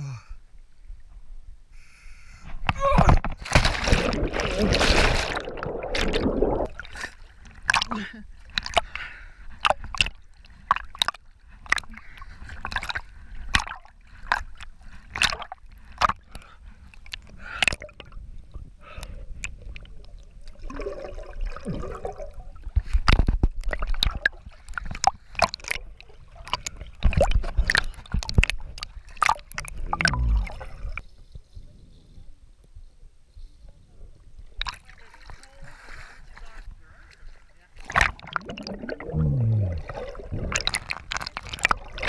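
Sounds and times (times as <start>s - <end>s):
muffled underwater rumbling and bubbling: 2.6s - 7.9s, 8.6s - 32.4s, 37.8s - 42.0s
water splashing and gurgling: 2.6s - 31.1s, 34.5s - 36.8s, 37.8s - 42.0s.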